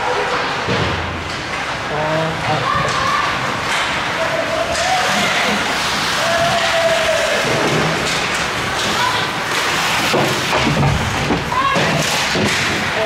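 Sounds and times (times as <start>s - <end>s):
skate and arena noise: 0.0s - 13.0s
people shouting calls: 2.2s - 7.9s
thuds against rink boards: 10.0s - 13.0s.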